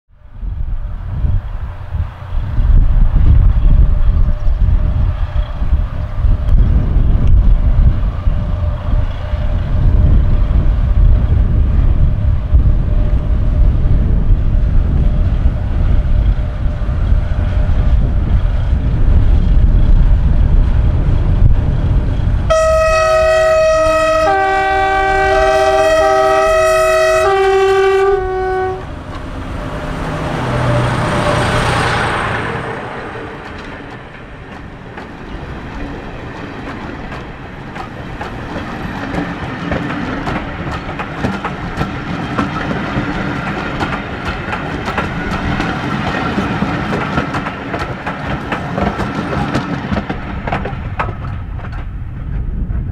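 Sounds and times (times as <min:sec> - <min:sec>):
train horns sounding together: 0:22.5 - 0:29.0
diesel engines passing: 0:27.8 - 0:37.4
wheels clicking over rail joints: 0:32.8 - 0:52.9.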